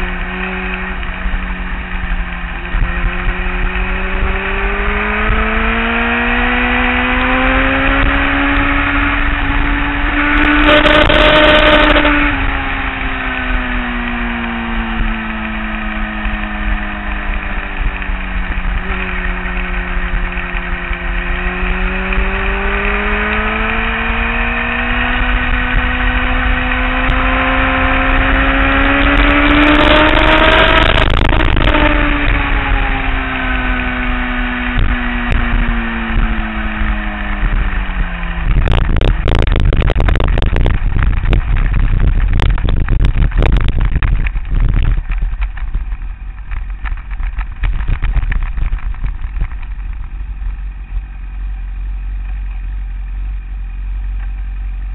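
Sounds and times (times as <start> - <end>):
motorcycle engine accelerating: 0.0 - 54.9
rush of wind: 0.0 - 54.9
motorcycle bumping over grass: 38.5 - 51.0.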